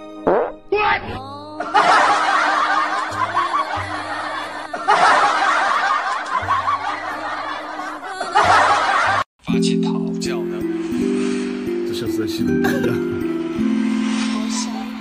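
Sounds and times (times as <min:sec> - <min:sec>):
crowd laughing: 0:01.6 - 0:09.3, 0:12.6 - 0:13.2
faint background music: 0:08.3 - 0:15.0.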